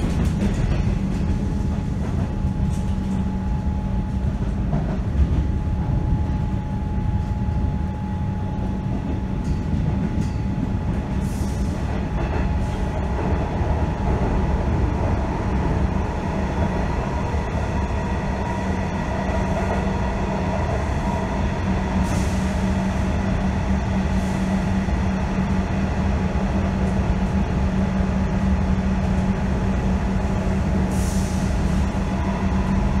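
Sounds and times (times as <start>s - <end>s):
constant low hum: 0.0s - 21.9s
train wheels rumbling: 0.0s - 33.0s.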